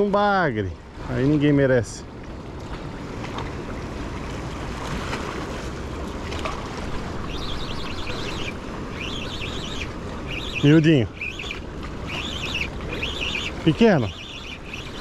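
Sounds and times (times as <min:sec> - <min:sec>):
open water wash: 0:00.0 - 0:15.0
high twittering bird calls: 0:07.2 - 0:15.0.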